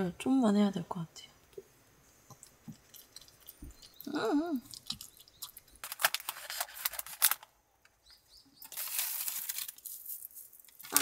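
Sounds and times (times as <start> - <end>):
scissors cutting plastic wrapper: 5.8 - 7.4.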